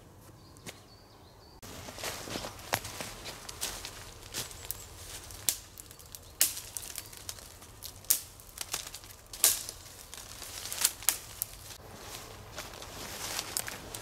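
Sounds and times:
dry twigs snapping: 2.2 - 11.8, 12.6 - 14.0.

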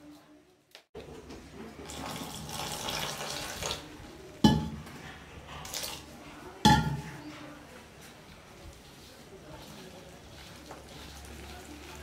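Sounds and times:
water pouring into bowl: 1.8 - 3.9.

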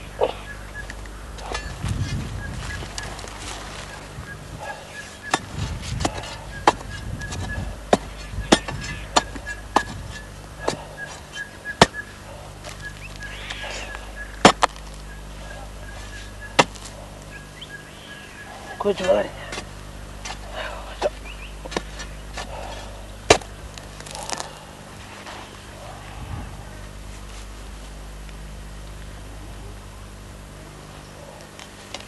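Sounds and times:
low steady hum: 0.0 - 32.0
digging tool striking roots: 0.2 - 17.6, 18.8 - 24.7.

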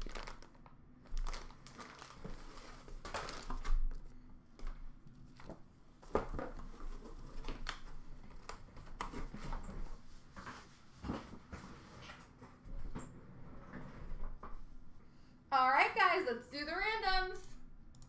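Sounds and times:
plastic rustling: 0.0 - 12.2.

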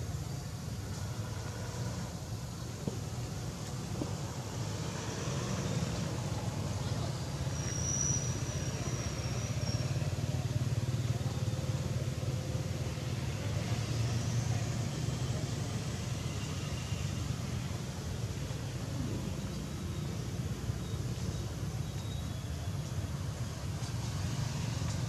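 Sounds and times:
road traffic rumble: 0.0 - 25.0
thin high whistle: 7.5 - 10.0.

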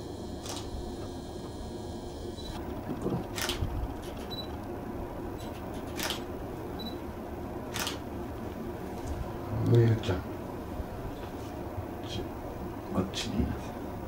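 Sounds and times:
camera shutter clicks: 0.4 - 0.7, 3.3 - 4.3, 5.4 - 6.3, 7.7 - 8.0.

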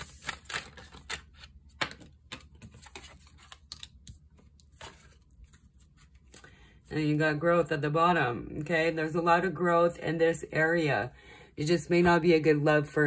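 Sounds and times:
cards clicking and tapping: 0.0 - 6.4.

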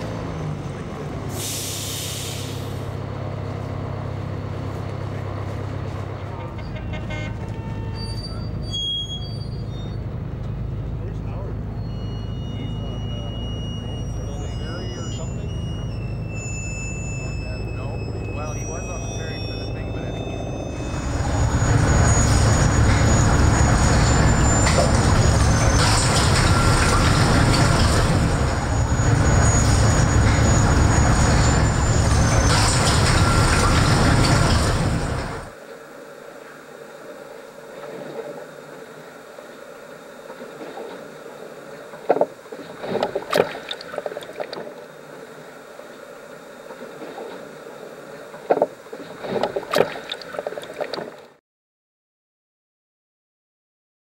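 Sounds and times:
water rushing and churning: 11.5 - 51.4
water sloshing and slapping: 40.2 - 45.2, 46.7 - 51.4.

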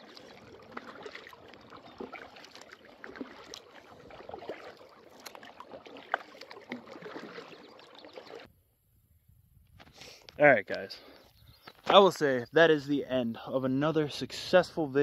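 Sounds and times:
paddle splashing in water: 0.0 - 8.5.

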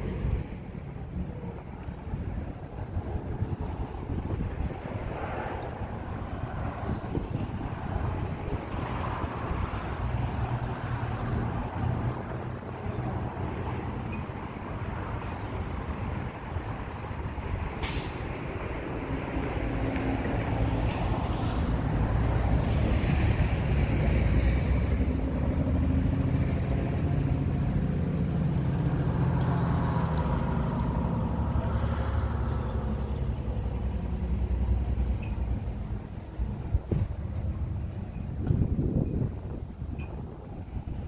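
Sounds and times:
vehicle engine rumble: 0.0 - 41.0
short hiss: 17.8 - 18.2.

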